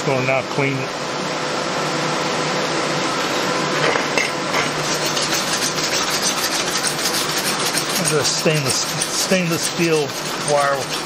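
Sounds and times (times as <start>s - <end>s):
wire brush scrubbing steel plate: 4.2s - 11.0s.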